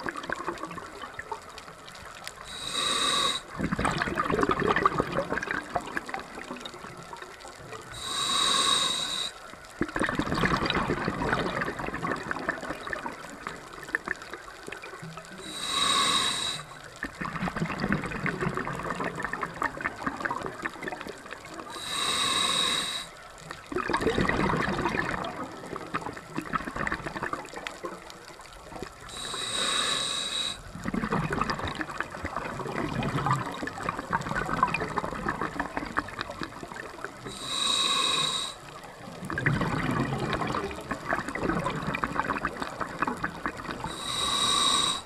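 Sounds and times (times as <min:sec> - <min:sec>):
exhaled bubbles crackling: 0:00.0 - 0:45.0
regulator inhalation hiss: 0:02.4 - 0:03.5, 0:08.0 - 0:09.5, 0:15.4 - 0:16.9, 0:21.7 - 0:23.2, 0:29.1 - 0:30.7, 0:37.3 - 0:38.6, 0:43.9 - 0:45.0.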